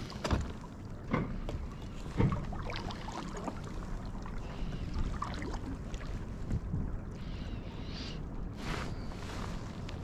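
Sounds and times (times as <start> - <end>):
rushing water: 0.0 - 7.2
wind: 0.0 - 10.0.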